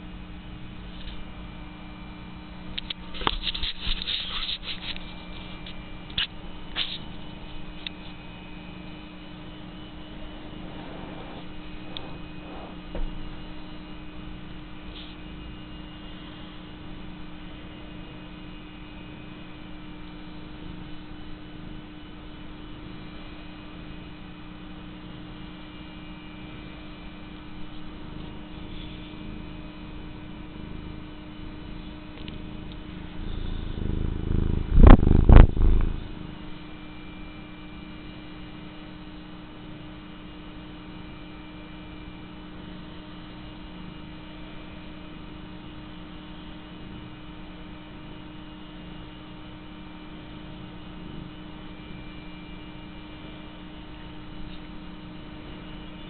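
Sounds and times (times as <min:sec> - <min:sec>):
cat purring: 0:09.9 - 0:13.5, 0:27.9 - 0:36.6
low rubbing noise: 0:10.0 - 0:13.4, 0:32.9 - 0:36.4.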